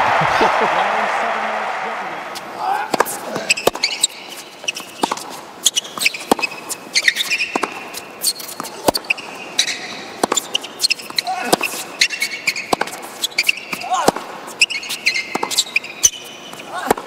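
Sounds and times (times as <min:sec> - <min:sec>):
racquets striking tennis ball: 0:02.3 - 0:17.0
tennis ball bouncing: 0:02.3 - 0:17.0
shoes squeaking on court: 0:02.9 - 0:17.0.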